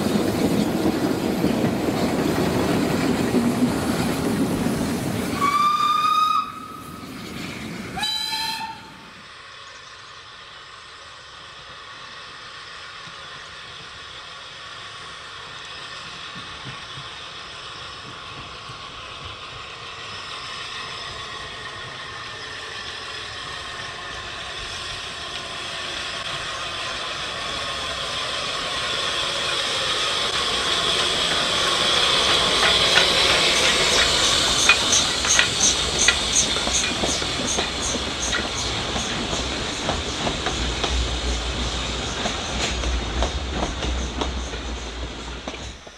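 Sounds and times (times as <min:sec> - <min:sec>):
steam train running hiss: 0:00.0 - 0:45.9
wheels clicking over rail joints: 0:27.9 - 0:45.9.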